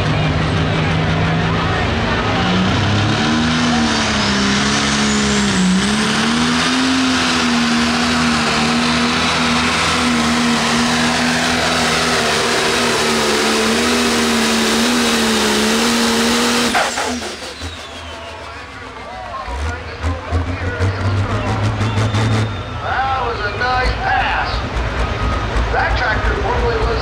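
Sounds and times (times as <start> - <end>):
diesel engine running flat out: 0.0 - 27.0.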